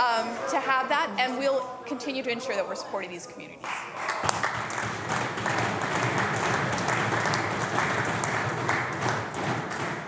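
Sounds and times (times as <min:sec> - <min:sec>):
people clapping: 0:03.6 - 0:10.0.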